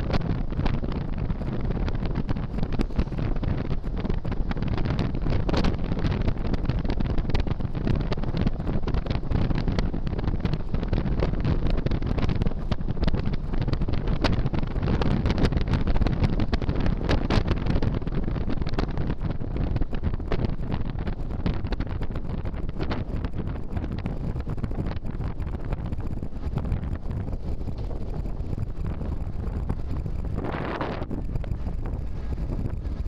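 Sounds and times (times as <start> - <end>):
road noise: 0.0 - 33.0
wind buffeting microphone: 0.0 - 33.0.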